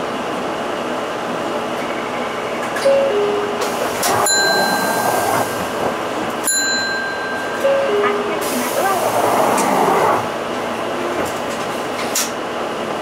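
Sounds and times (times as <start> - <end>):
bus interior running noise: 0.0 - 13.0
held ringing chime tone: 4.2 - 5.3.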